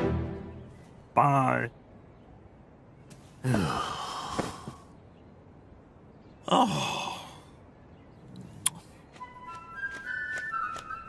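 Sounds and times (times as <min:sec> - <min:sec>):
man sighing: 0:03.4 - 0:04.8.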